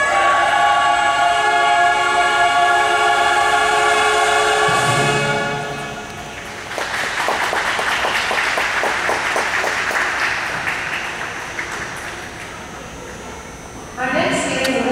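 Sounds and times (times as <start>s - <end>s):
audience applauding: 6.1s - 12.7s.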